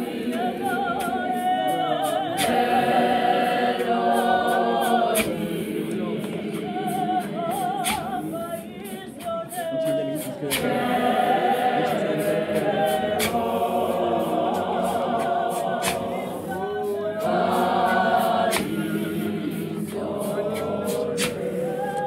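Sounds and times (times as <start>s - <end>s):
choir singing a cappella: 0.0s - 22.0s.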